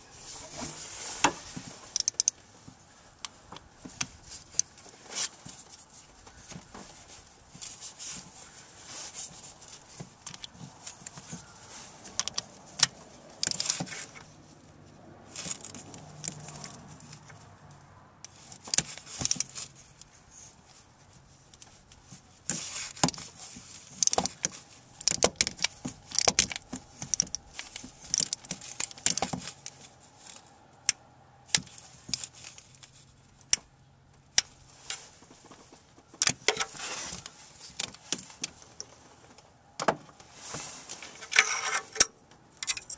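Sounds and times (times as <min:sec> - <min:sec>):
socket wrench clicking: 0:02.0 - 0:02.4
steel tools clinking: 0:41.2 - 0:42.9.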